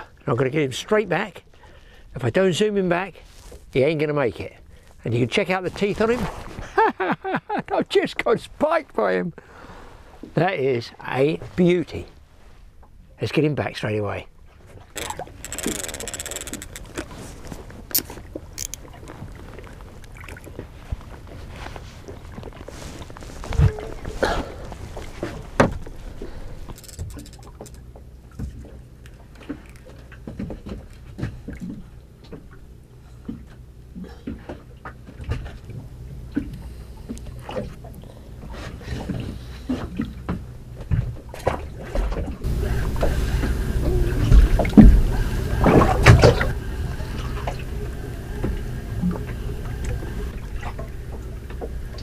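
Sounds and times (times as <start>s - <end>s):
sharp clicks: 15.0s - 17.1s, 17.9s - 18.8s, 26.8s - 27.8s
fishing reel ticking: 15.0s - 17.2s, 17.9s - 18.9s, 26.7s - 27.8s
wind and water rumble: 16.7s - 52.0s
water washing against boat: 40.9s - 52.0s.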